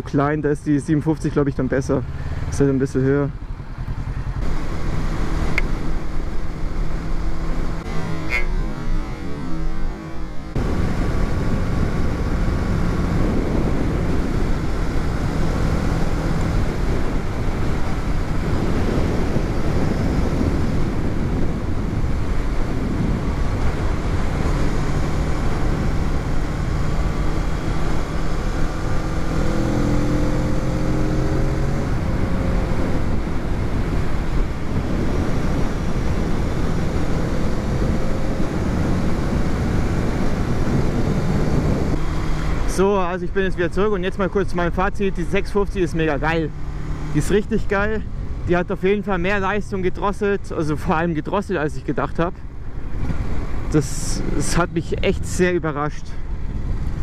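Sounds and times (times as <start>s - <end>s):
wind rushing over microphone: 0.0s - 57.0s
motorcycle engine running: 1.3s - 50.0s.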